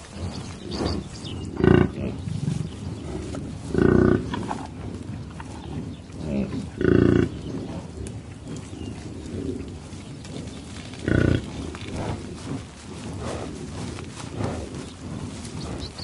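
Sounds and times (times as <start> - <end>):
bison grunting: 0.0 - 16.0.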